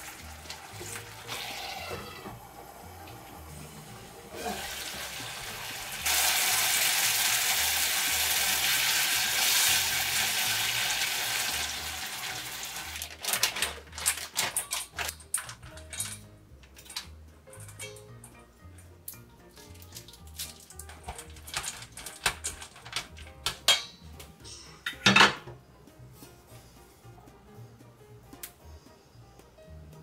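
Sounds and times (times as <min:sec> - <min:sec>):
potatoes sizzling in sauce: 0:00.0 - 0:13.2.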